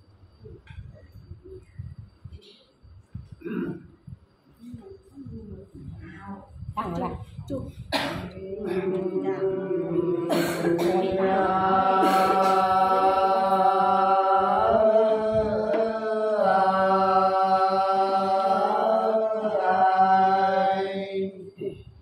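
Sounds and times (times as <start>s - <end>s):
person singing unaccompanied: 8.2s - 21.7s.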